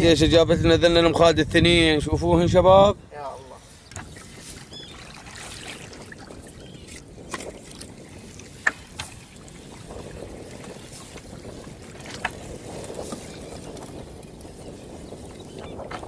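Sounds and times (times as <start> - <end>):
water noise: 0.0 - 16.0
wind: 0.0 - 16.0.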